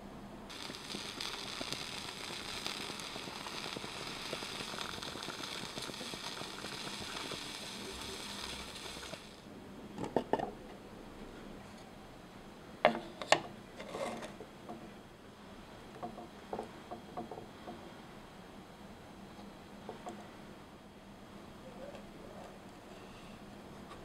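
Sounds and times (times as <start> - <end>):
broth simmering with crackle and hiss: 0.5 - 9.5, 13.0 - 22.8.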